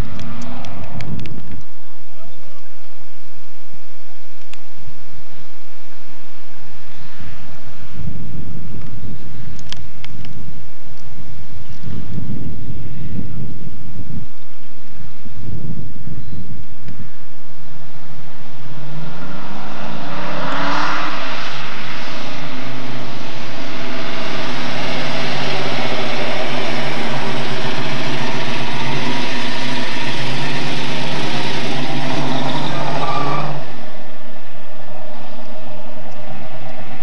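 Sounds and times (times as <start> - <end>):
car engine revving past: 17.8 - 37.0.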